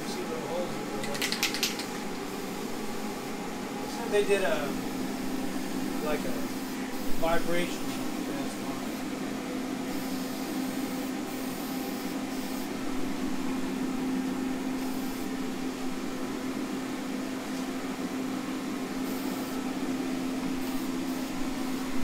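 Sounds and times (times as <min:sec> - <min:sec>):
heater humming: 0:00.0 - 0:22.0
aerosol can spraying: 0:09.9 - 0:12.8, 0:14.8 - 0:15.3, 0:20.6 - 0:21.9.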